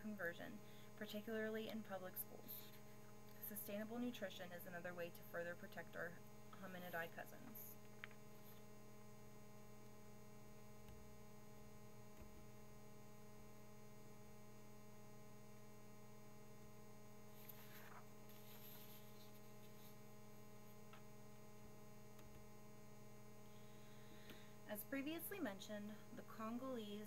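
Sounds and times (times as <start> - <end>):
low electrical hum: 0.0 - 27.0.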